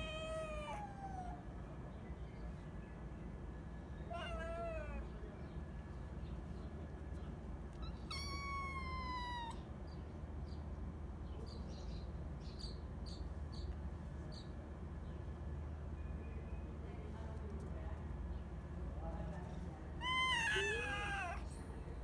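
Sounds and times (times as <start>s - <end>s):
young cats meowing: 0.0s - 1.4s, 4.1s - 5.1s, 7.8s - 9.7s, 20.0s - 21.5s.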